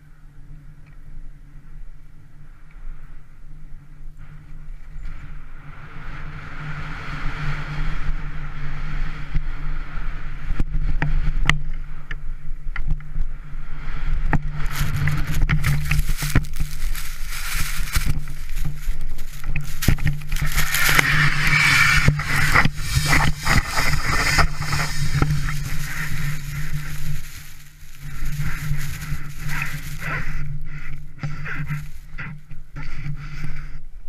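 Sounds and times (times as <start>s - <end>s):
wind rumbling on microphone: 0.0s - 34.0s
rush of sliding avalanche snow: 5.2s - 11.4s, 13.5s - 33.7s
skis hissing over snow: 14.5s - 33.7s.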